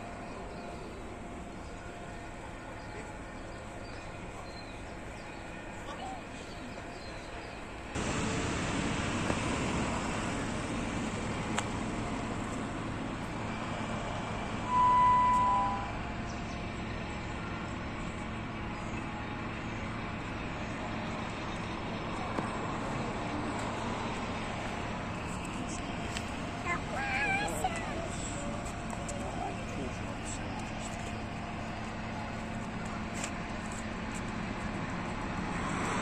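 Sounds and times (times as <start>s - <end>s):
road traffic noise: 0.0s - 36.0s
clear tone: 14.6s - 16.0s.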